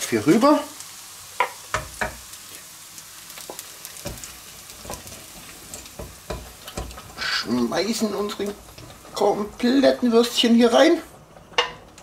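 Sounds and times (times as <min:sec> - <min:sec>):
sausage sizzling in a frying pan: 0:00.0 - 0:12.0
wooden spoons knocking and scraping: 0:04.0 - 0:09.3, 0:11.4 - 0:12.0.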